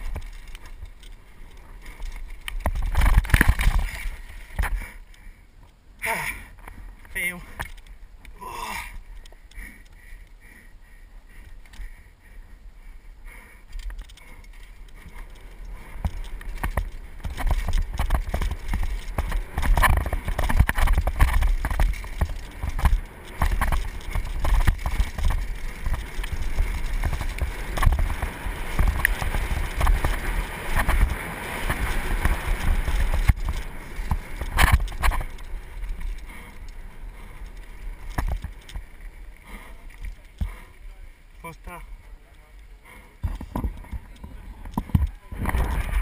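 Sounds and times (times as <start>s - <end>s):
tyres rumbling on dirt: 0.0s - 5.1s, 13.9s - 46.0s
bike frame and chain rattling: 0.0s - 5.2s, 6.5s - 10.4s, 13.6s - 40.9s.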